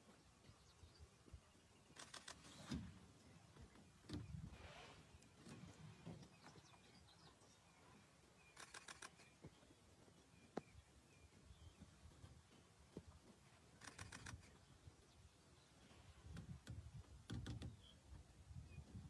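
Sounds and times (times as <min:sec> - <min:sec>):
faint bird chirps: 0:00.4 - 0:12.0
quick clicks: 0:02.0 - 0:02.5, 0:08.6 - 0:09.2, 0:13.8 - 0:14.5.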